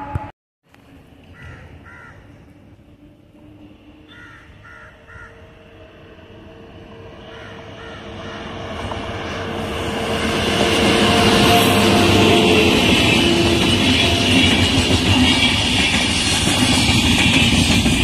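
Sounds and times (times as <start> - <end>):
crows cawing: 1.3 - 2.4, 4.1 - 5.5, 7.2 - 8.8
electric locomotive running: 2.4 - 18.0.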